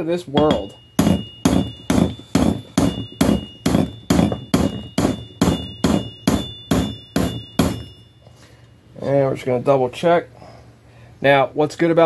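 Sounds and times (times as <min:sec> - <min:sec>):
hammer tapping metal tool: 0:00.3 - 0:08.2.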